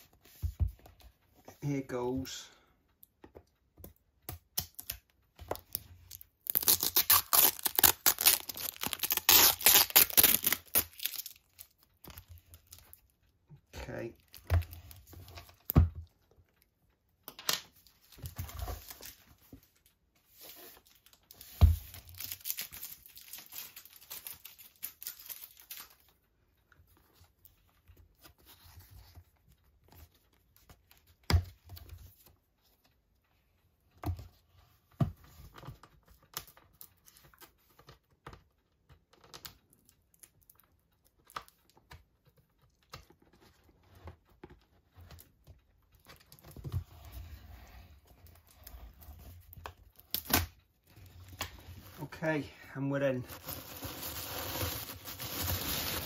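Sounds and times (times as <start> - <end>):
paper tearing: 6.5 - 11.2, 53.3 - 56.0.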